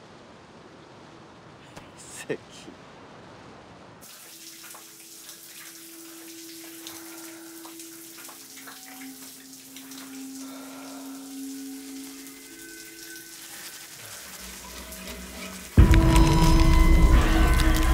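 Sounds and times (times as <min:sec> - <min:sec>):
shower water spraying: 0:04.0 - 0:17.9
low held tones: 0:05.6 - 0:17.9.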